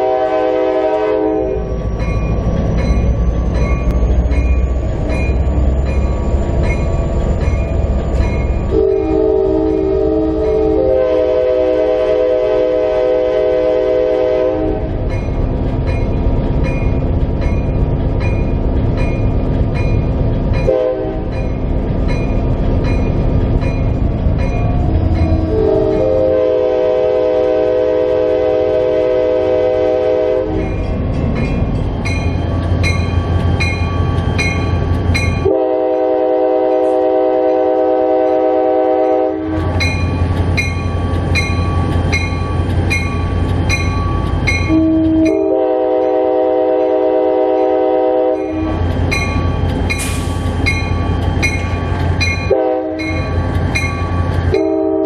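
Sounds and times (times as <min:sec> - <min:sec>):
locomotive air horn: 0:00.0 - 0:01.7, 0:08.7 - 0:15.0, 0:20.7 - 0:21.3, 0:25.4 - 0:30.7, 0:35.4 - 0:39.8, 0:44.7 - 0:48.8, 0:52.4 - 0:53.4, 0:54.5 - 0:55.0
locomotive engine running: 0:00.7 - 0:37.3, 0:37.9 - 0:54.8.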